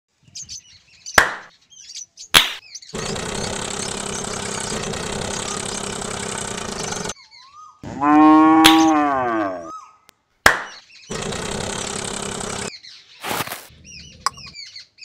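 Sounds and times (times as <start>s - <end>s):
engine running: 3.0s - 7.2s, 11.1s - 12.7s
cow mooing: 7.9s - 9.7s.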